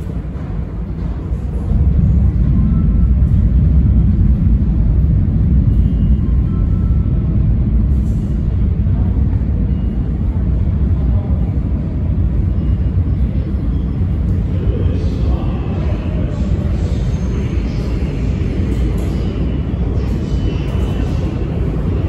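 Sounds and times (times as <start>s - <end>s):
subway train rumbling in tunnel: 0.0s - 22.0s.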